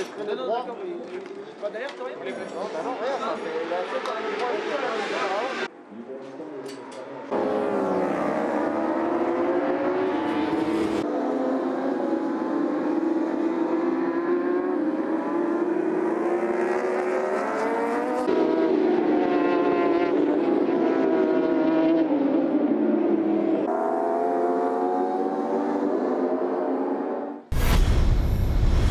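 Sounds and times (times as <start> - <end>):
superbike engines revving high: 2.8 - 5.7, 7.2 - 27.3.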